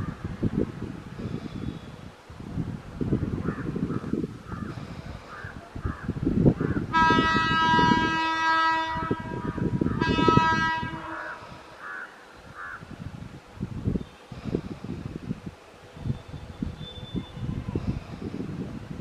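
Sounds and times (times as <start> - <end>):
crows cawing: 3.4 - 6.9, 11.0 - 12.9
locomotive air horn blasts: 6.9 - 11.7.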